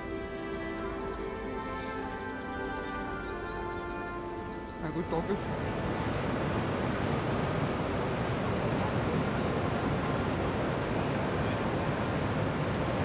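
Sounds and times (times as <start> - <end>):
water rushing over weir: 5.4 - 13.0.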